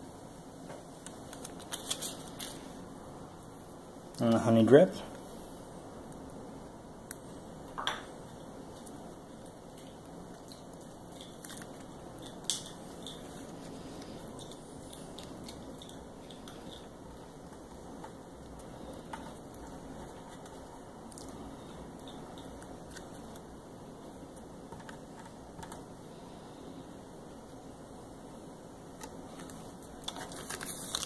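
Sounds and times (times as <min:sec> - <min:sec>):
decal and paper crinkling: 0:01.0 - 0:02.8, 0:29.3 - 0:31.0.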